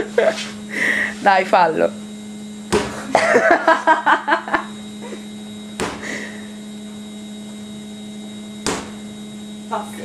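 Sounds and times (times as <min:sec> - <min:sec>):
electrical hum: 0:00.0 - 0:10.0
dough thudding on worktop: 0:02.7 - 0:03.0, 0:05.8 - 0:06.0, 0:08.6 - 0:09.0.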